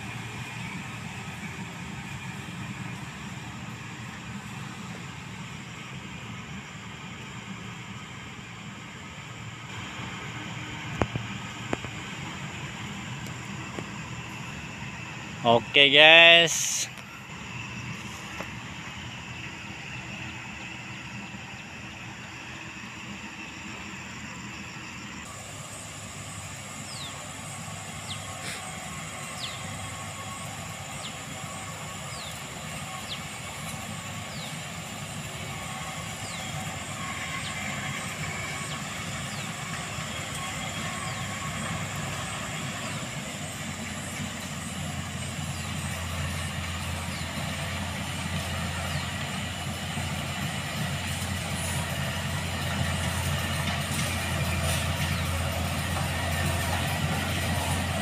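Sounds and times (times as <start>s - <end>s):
diesel engine drone: 0.0s - 58.0s.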